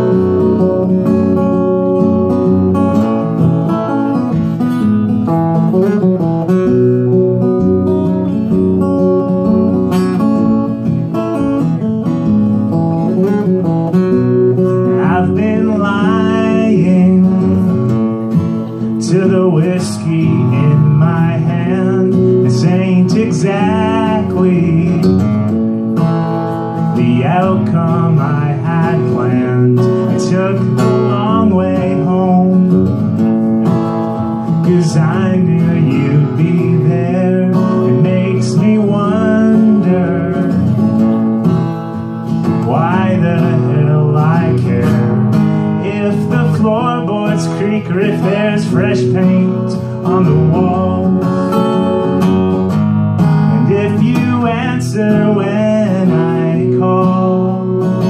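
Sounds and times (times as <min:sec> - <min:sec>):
acoustic guitar strumming: 0:00.0 - 0:58.0
person singing: 0:14.8 - 0:17.7, 0:18.6 - 0:25.2, 0:27.0 - 0:32.8, 0:34.6 - 0:40.7, 0:42.6 - 0:52.1, 0:53.6 - 0:58.0.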